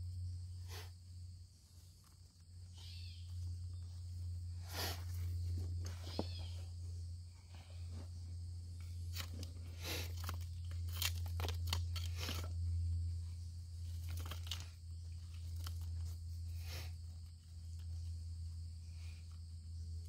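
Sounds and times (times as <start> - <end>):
steady low hum: 0.0 - 20.0
digging into dirt and rock: 8.8 - 12.8, 13.8 - 17.9.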